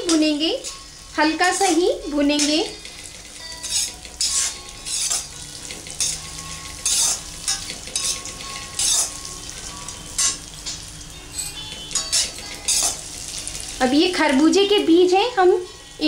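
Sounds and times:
low sizzle: 0:00.0 - 0:16.0
metal spatula scraping a pan: 0:03.5 - 0:09.2, 0:11.3 - 0:13.0.

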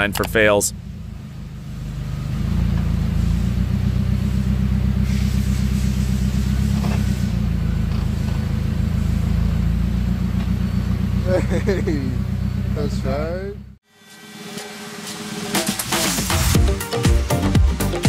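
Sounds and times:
forklift engine rumbling: 0:00.0 - 0:13.8.

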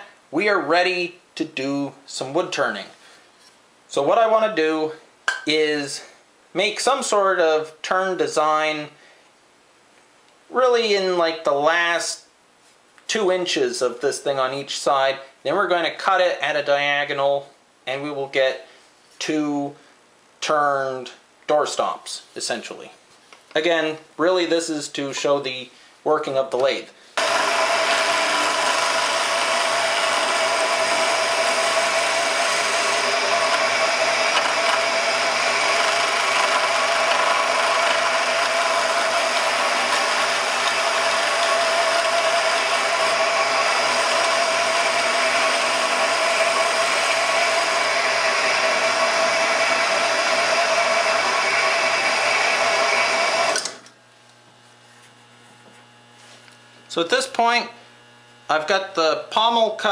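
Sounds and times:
saw motor running: 0:27.2 - 0:53.9
turning tool cutting wood: 0:27.2 - 0:53.9.

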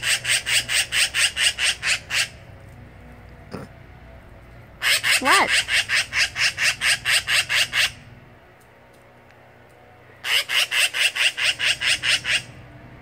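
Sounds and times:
magpie chattering: 0:00.0 - 0:02.4, 0:04.8 - 0:08.0, 0:10.2 - 0:12.5.

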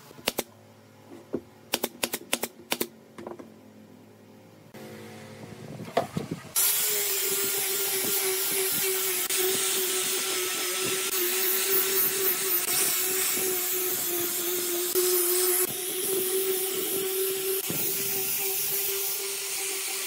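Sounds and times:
angle grinder sanding wood: 0:06.6 - 0:20.0.

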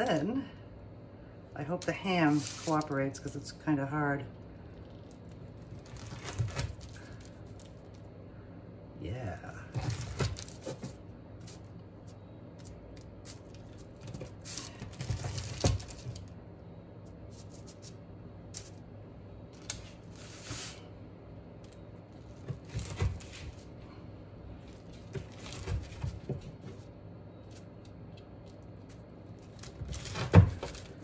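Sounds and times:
knife scraping parchment paper: 0:02.2 - 0:03.0.

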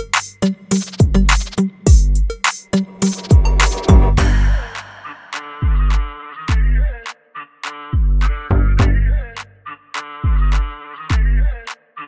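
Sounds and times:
background music with beat: 0:00.0 - 0:12.0
bass drum hits: 0:02.8 - 0:05.0, 0:05.6 - 0:06.8.

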